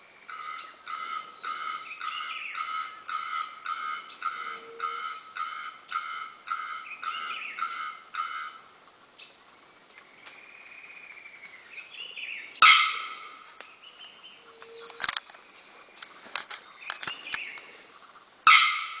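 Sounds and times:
bird ringing calls: 0.3s - 8.7s, 12.4s - 13.6s, 14.3s - 17.8s, 18.4s - 19.0s.

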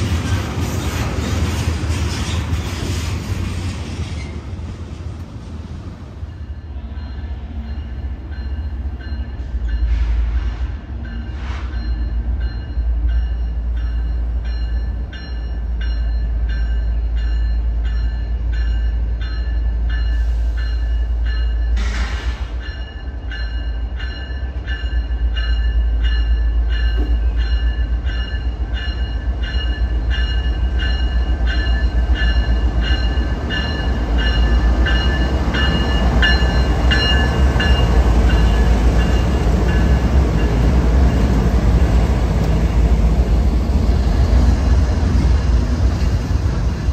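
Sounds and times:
train rumble: 0.0s - 46.9s
locomotive bell ringing: 6.3s - 10.0s, 11.0s - 21.8s, 22.6s - 41.4s.

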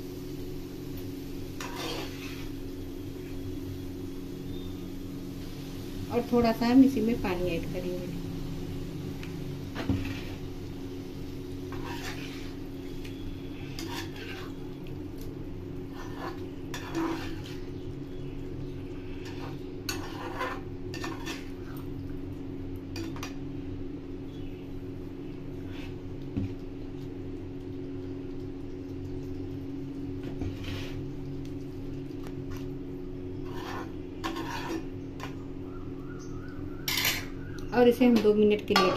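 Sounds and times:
steady low hum: 0.0s - 38.9s
metal spatula scraping a pan: 1.6s - 2.7s, 9.8s - 10.4s, 11.7s - 14.7s, 15.8s - 17.7s, 19.0s - 21.8s, 25.6s - 26.0s, 30.2s - 31.0s, 33.4s - 35.4s.

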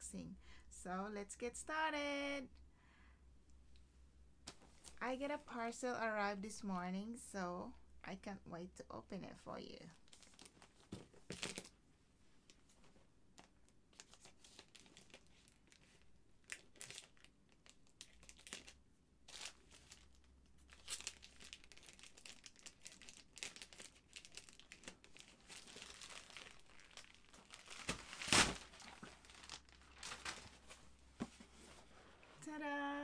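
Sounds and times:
plastic bag crinkling and rustling: 10.0s - 11.7s, 14.0s - 31.9s.

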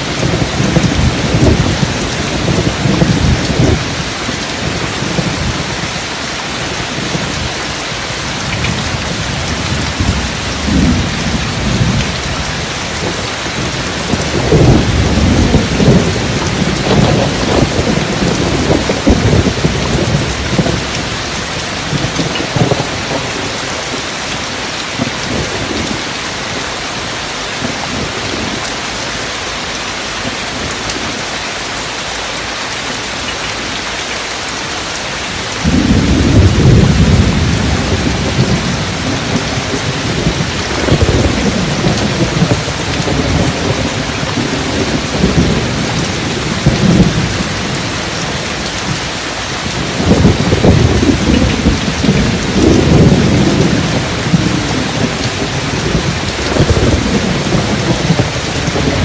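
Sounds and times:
thunder rumbling: 0.0s - 31.4s, 35.1s - 59.0s
steady rain: 0.0s - 59.0s.

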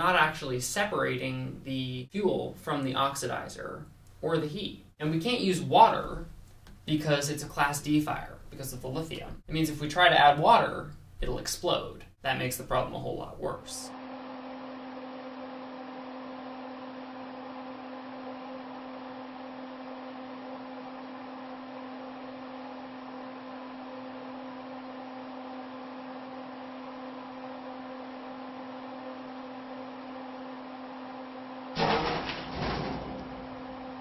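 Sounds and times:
low electrical hum: 0.0s - 34.0s
battery venting burst: 31.8s - 33.6s.

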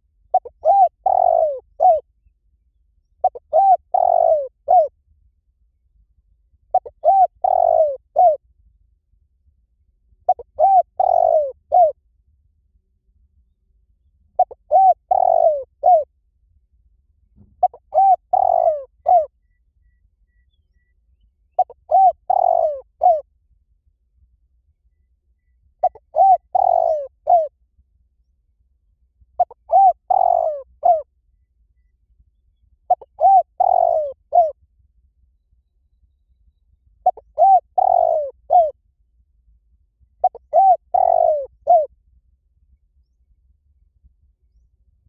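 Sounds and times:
dove cooing: 0.3s - 2.1s, 3.2s - 4.9s, 6.7s - 8.4s, 10.3s - 12.0s, 14.4s - 16.1s, 17.6s - 19.3s, 21.6s - 23.3s, 25.8s - 27.5s, 29.4s - 31.1s, 32.9s - 34.6s, 37.0s - 38.8s, 40.2s - 41.9s.

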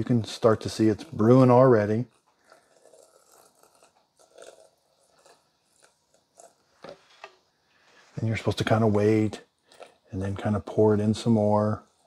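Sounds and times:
water pouring onto coffee grounds: 0.0s - 6.6s
faint crackles of soaking grounds: 0.0s - 12.0s.

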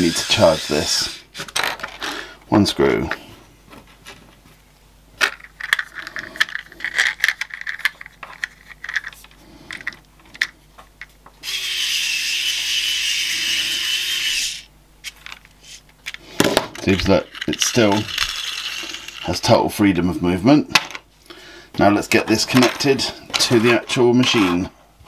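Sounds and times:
electric screwdriver motor running: 11.4s - 14.6s, 18.1s - 19.2s.

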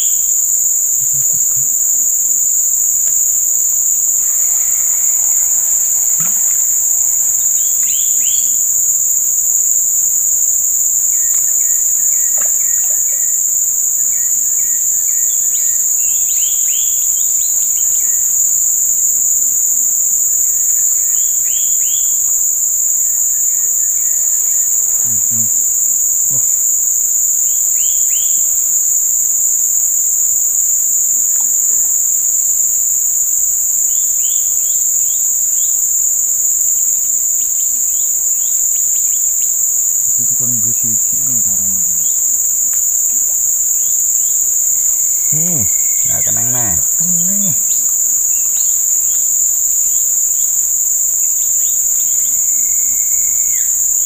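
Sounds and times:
high-pitched insect drone: 0.0s - 15.7s, 23.4s - 26.9s, 39.7s - 42.7s, 44.6s - 47.8s.

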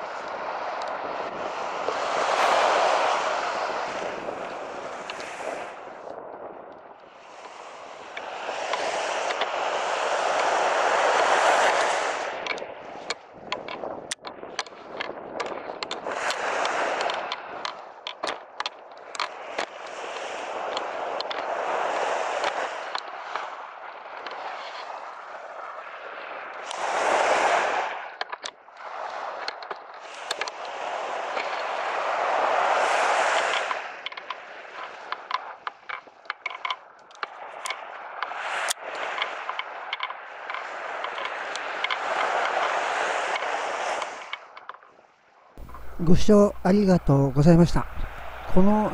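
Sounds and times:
small waves breaking on beach: 0.0s - 48.9s
sharp crackling clicks: 11.6s - 21.5s, 28.2s - 28.6s, 33.3s - 44.9s.

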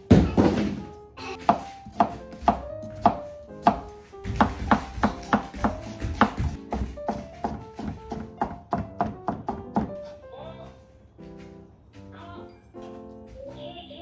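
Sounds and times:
knife chopping on plastic board: 1.3s - 10.0s.

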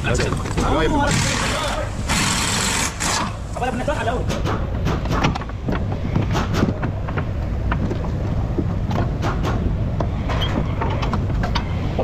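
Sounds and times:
steady low rumble: 3.4s - 12.0s.

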